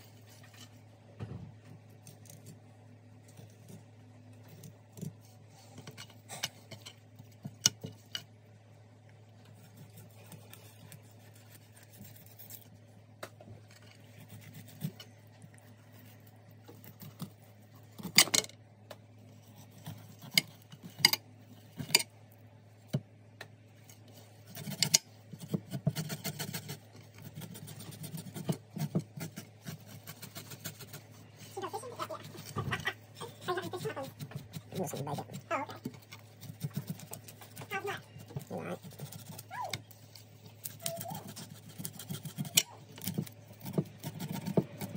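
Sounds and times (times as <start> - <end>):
low steady hum: 0.0 - 44.9
scraping and rubbing: 9.2 - 18.5, 19.2 - 22.1, 23.7 - 44.9
fish being cleaned by hand: 24.0 - 44.9.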